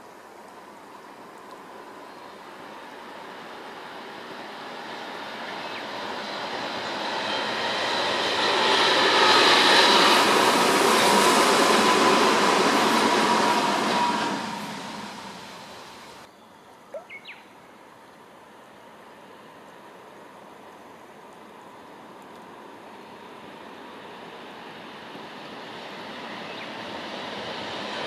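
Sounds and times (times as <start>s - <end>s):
electric train whine: 1.8s - 16.3s, 18.6s - 28.0s
train wheels rolling on rail: 3.5s - 16.3s.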